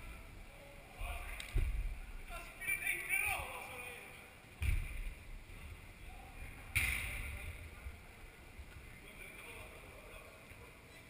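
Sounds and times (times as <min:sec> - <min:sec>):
football kick ringing in hall: 0:04.6 - 0:05.2
low thud: 0:04.6 - 0:05.2.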